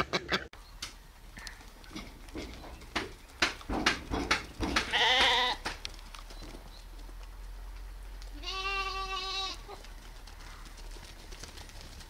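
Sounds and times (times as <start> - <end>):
lambs bleating: 4.9 - 5.6, 8.3 - 9.8.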